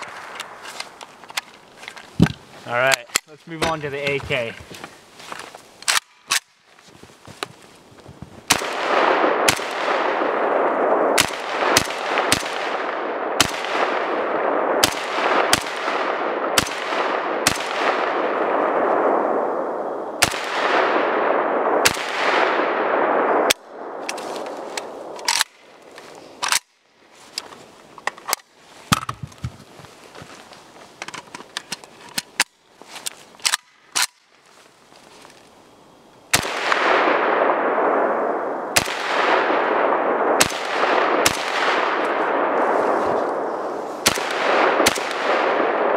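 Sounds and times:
rifle shots echoing: 8.5 - 25.8, 36.3 - 45.9.

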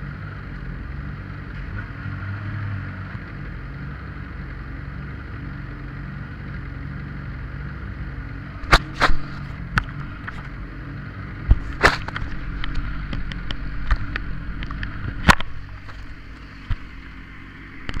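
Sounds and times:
low steady rumble: 0.0 - 18.0
camera handling knocks and rubbing: 8.6 - 10.5, 11.5 - 16.9.

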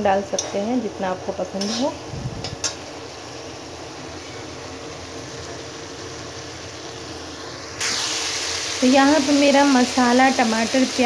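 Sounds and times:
metal spatula scraping a pan: 1.6 - 2.0.

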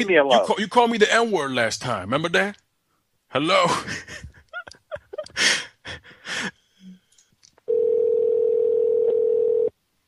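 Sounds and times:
telephone dial tone: 7.7 - 9.7.

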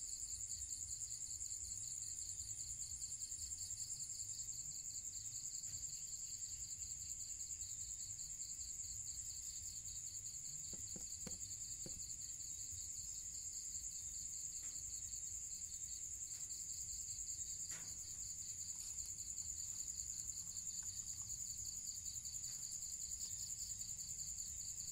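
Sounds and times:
high-pitched insect trill: 0.0 - 24.9
rapidly pulsing insect trill: 0.0 - 24.9
faint knocks: 10.6 - 12.1.

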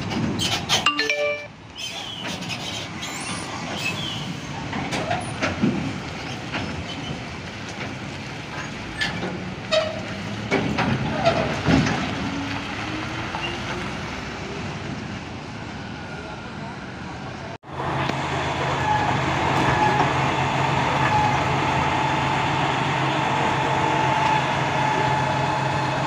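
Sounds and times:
trailer clanking and rattling: 0.0 - 14.1, 17.7 - 26.0
diesel truck engine running: 17.6 - 26.0.

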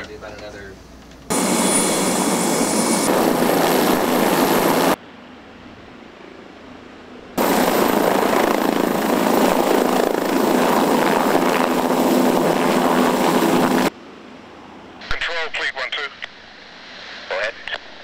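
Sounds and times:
helicopter rotor and turbine: 1.3 - 5.3, 7.4 - 14.8.

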